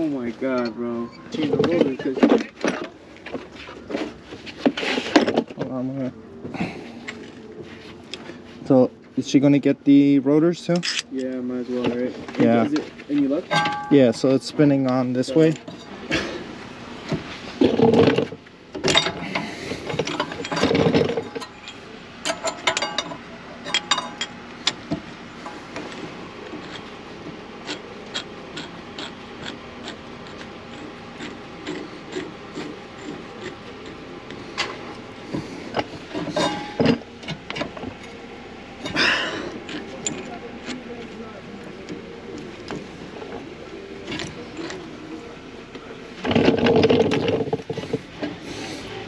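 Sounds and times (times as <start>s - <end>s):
metal tools clattering: 10.7s - 11.1s, 13.4s - 14.4s, 15.2s - 16.4s, 17.6s - 26.0s, 35.7s - 38.2s, 46.2s - 48.4s.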